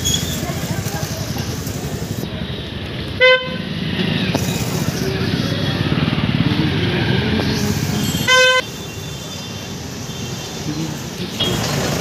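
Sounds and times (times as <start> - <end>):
dense street traffic: 0.0 - 12.0
motorcycle and scooter engines: 0.0 - 12.0
vehicle horn honk: 3.2 - 3.6, 8.1 - 10.5.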